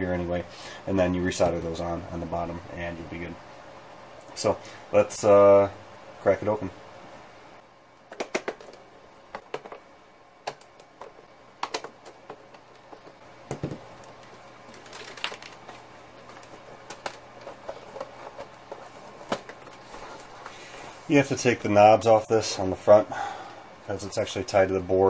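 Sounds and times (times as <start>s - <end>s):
plastic clicks and rattles: 8.1s - 8.8s, 10.5s - 18.5s.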